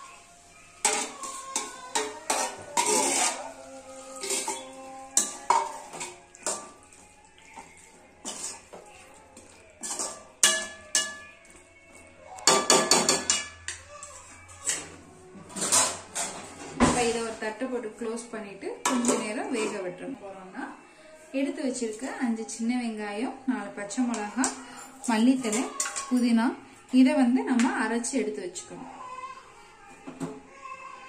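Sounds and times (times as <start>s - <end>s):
metal ladle scraping a pan: 0.8s - 11.3s, 12.4s - 17.5s, 18.8s - 19.8s, 24.1s - 26.3s.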